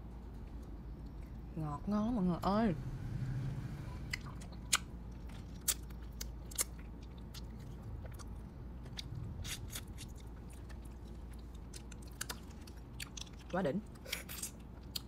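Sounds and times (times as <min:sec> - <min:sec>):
chewing: 0:04.1 - 0:15.0.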